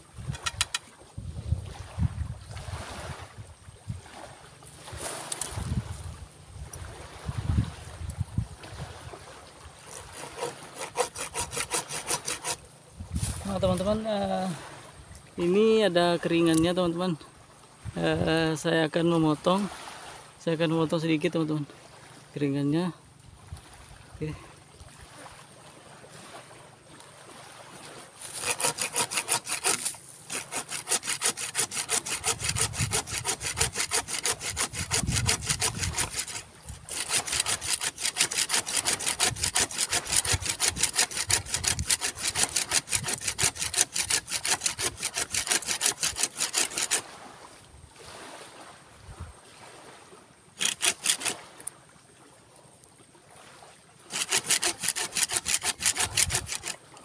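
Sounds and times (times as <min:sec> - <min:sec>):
hand saw cutting wood: 0:00.2 - 0:00.8, 0:05.0 - 0:05.7, 0:09.8 - 0:14.0, 0:28.2 - 0:47.0, 0:50.6 - 0:51.7, 0:54.1 - 0:56.8.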